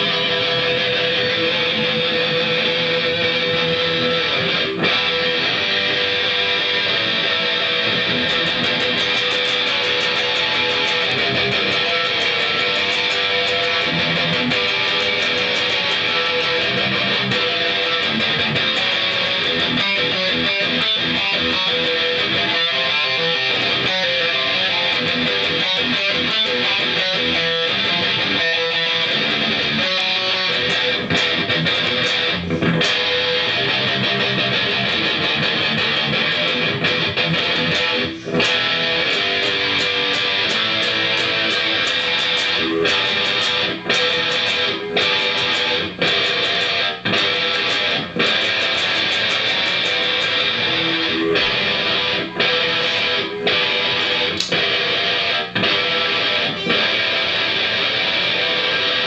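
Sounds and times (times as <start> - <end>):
electric guitar riff: 0.0 - 59.0.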